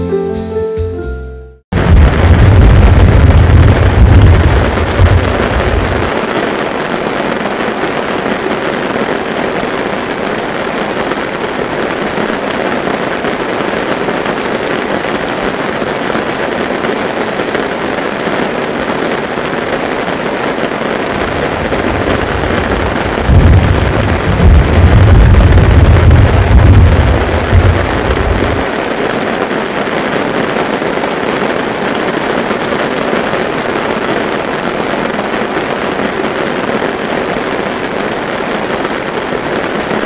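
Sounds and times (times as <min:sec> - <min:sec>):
heavy rain: 0:01.7 - 0:40.0
deep rumble of thunder: 0:01.8 - 0:06.3, 0:21.0 - 0:28.7.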